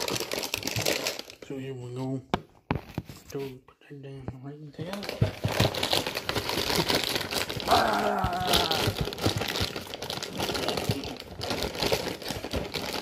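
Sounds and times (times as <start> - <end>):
plastic packaging crinkling: 0.0 - 1.8, 4.8 - 13.0.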